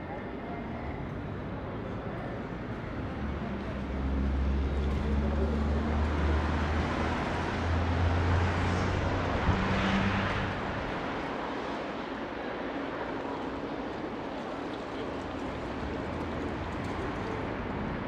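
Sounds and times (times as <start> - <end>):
tyre and road noise: 3.2 - 12.1.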